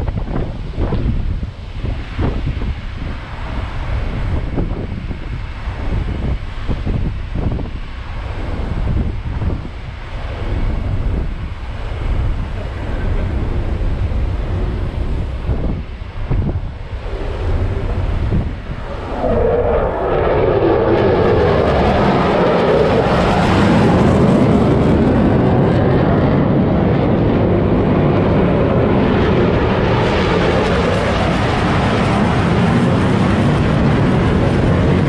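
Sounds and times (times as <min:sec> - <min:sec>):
wind on microphone: 0:00.0 - 0:35.0
fighter jets roaring past: 0:10.1 - 0:35.0.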